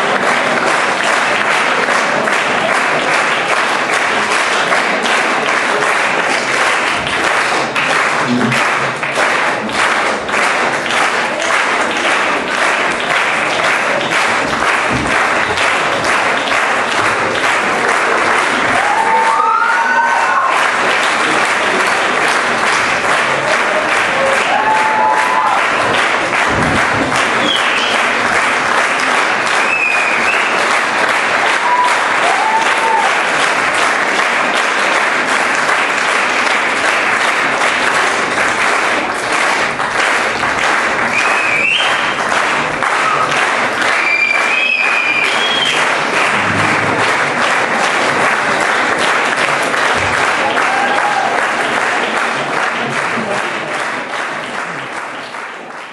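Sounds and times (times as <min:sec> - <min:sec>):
audience applauding: 0:00.0 - 0:55.9
people whooping: 0:18.7 - 0:20.7, 0:24.1 - 0:25.8, 0:31.4 - 0:33.3, 0:42.9 - 0:46.0, 0:50.4 - 0:51.6.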